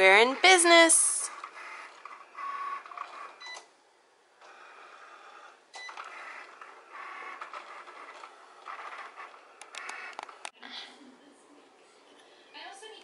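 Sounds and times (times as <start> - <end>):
cutting machine motors whirring: 1.3 - 3.6, 4.4 - 10.5.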